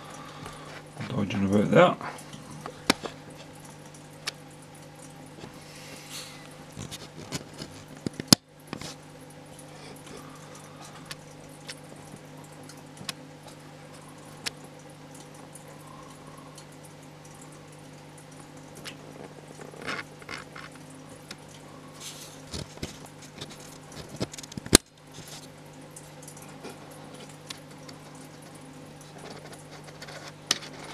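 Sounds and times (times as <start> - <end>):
aquarium filter humming: 0.0 - 30.9
water trickling: 0.0 - 30.9
small ticks: 10.5 - 17.6, 18.4 - 21.6.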